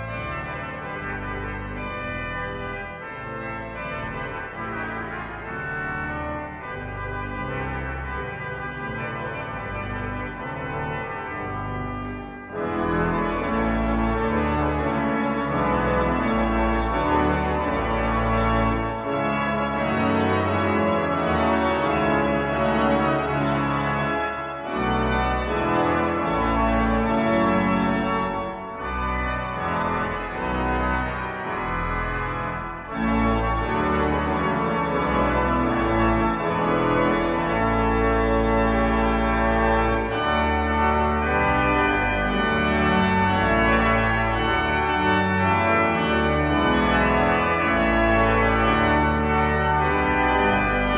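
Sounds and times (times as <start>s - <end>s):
pipe organ playing chords: 0.0s - 50.9s.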